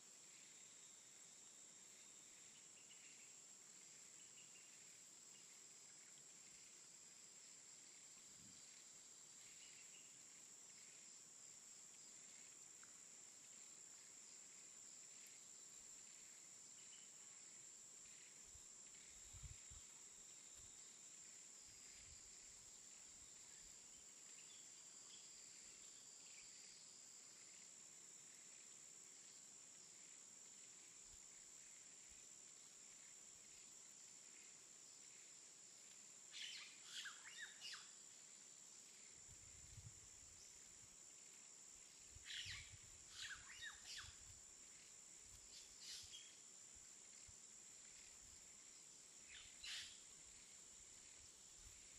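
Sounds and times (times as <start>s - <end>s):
high-pitched insect drone: 41.2s - 44.9s
bird chirps: 42.3s - 44.2s, 49.3s - 50.0s.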